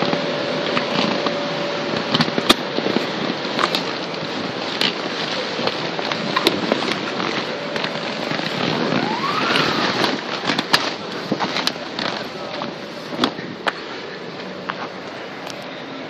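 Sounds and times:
vinyl rubbing and crackling: 0:00.0 - 0:15.8
short rising squeal: 0:08.6 - 0:10.3.

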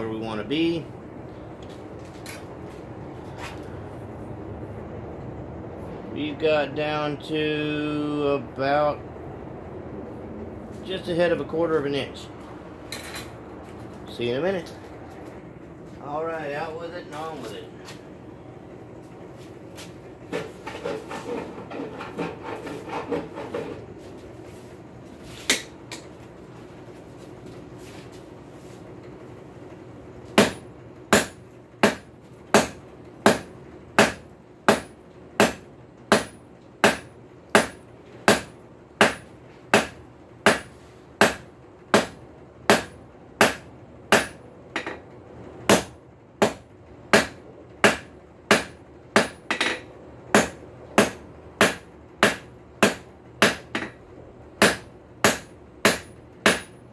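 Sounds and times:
hammer striking steel on anvil: 0:30.4 - 0:45.0, 0:45.7 - 0:54.0, 0:54.6 - 0:56.8.

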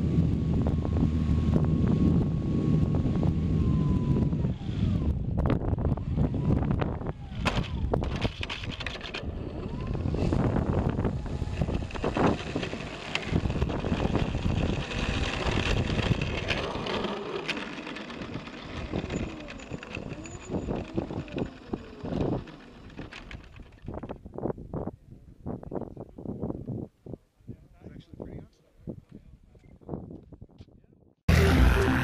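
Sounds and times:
wind on microphone: 0:00.0 - 0:17.2, 0:18.2 - 0:30.9
wheels rumbling on pavement: 0:00.0 - 0:24.6
model airplane propeller turning: 0:00.6 - 0:24.2.

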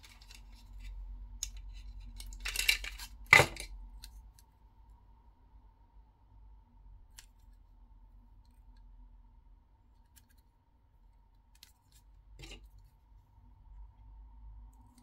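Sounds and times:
clicks and rubbing of packaging: 0:00.0 - 0:04.2.

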